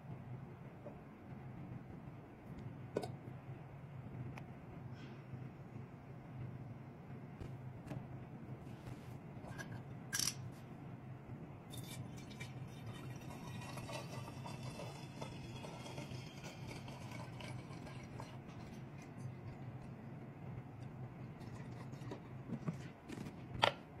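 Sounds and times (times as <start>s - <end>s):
liquid pouring into glass jug: 11.7s - 19.5s.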